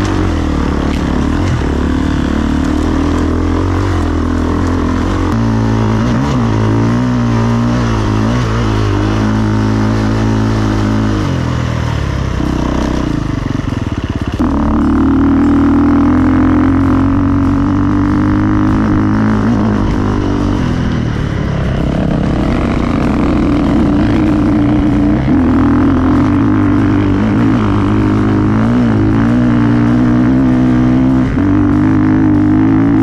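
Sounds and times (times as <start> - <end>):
vehicle engine droning: 0.0 - 33.0.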